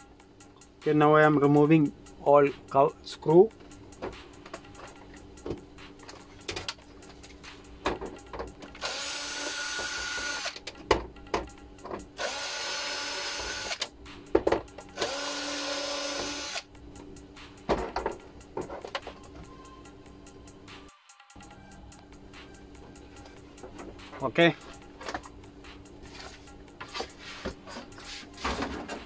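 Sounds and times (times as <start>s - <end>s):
drill motor whirring: 8.8s - 10.6s, 12.2s - 13.9s, 15.0s - 16.6s.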